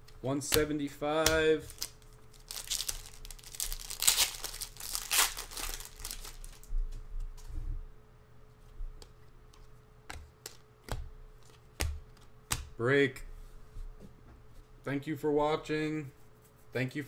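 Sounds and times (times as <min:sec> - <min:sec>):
cards tapping: 0:00.4 - 0:02.0, 0:09.0 - 0:12.8
foil wrapper tearing and crinkling: 0:01.7 - 0:06.7.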